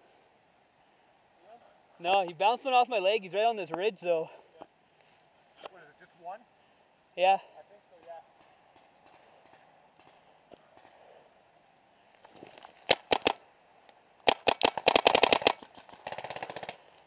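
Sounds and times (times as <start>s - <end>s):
paintball marker firing: 12.8s - 13.4s, 14.2s - 16.8s.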